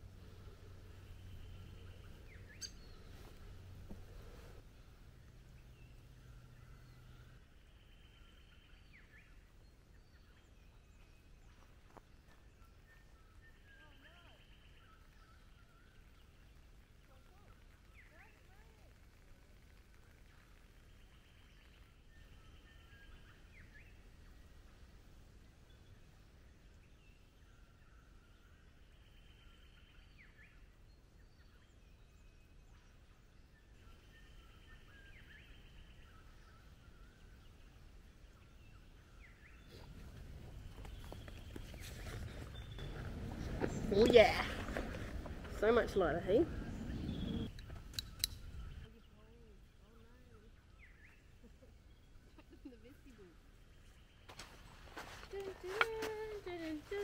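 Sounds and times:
distant bird chirps: 0.0 - 57.0.

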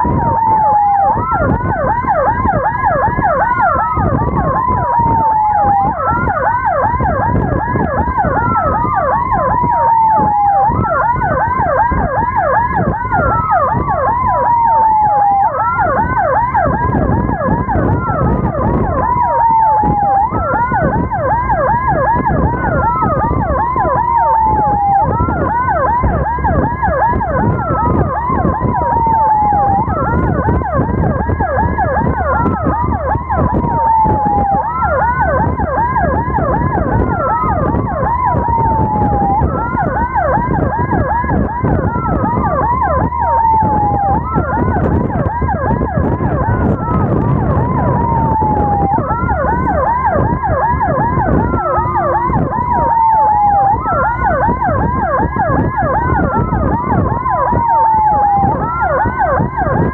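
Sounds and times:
road rumble: 0.0 - 59.9
siren wailing: 0.0 - 59.9
siren yelping: 0.0 - 59.9.

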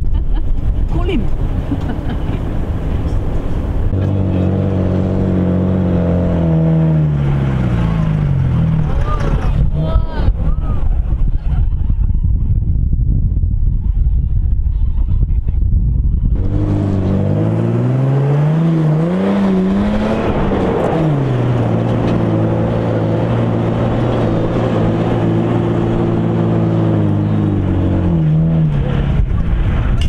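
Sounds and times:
vehicle engine revving: 0.6 - 11.4, 15.2 - 30.0.

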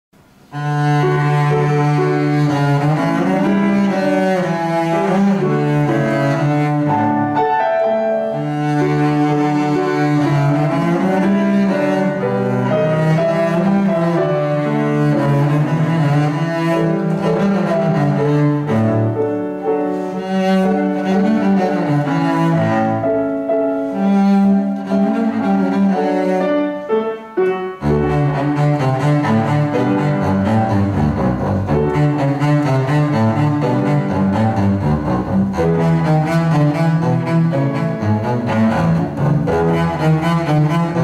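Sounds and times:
bowed double basses: 0.4 - 41.0.

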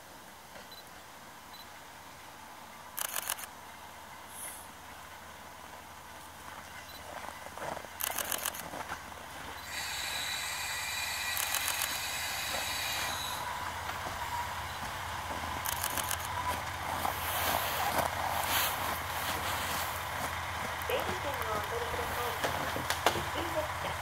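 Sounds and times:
high-pitched wheel whine: 9.5 - 24.0
train wheels clacking over rail joints: 9.6 - 24.0.

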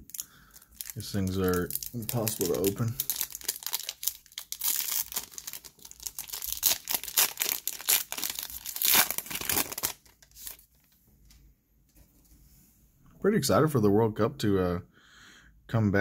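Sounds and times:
foil wrapper crinkling and tearing: 0.0 - 11.0.

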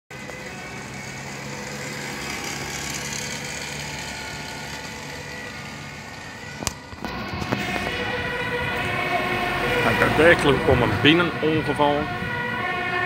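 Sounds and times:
road noise: 0.1 - 13.0
vehicle engine humming: 0.1 - 13.0.

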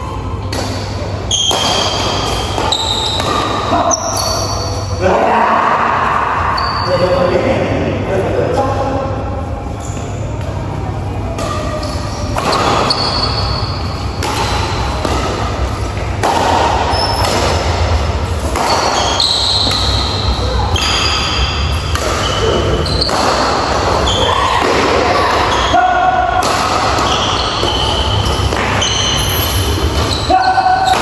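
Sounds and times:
rackets hitting shuttlecock: 0.4 - 4.5, 11.3 - 31.0
shoes squeaking on court floor: 1.2 - 5.0, 9.7 - 10.6, 11.4 - 16.2, 16.8 - 24.4, 26.9 - 31.0
steady low hum: 7.3 - 30.2.

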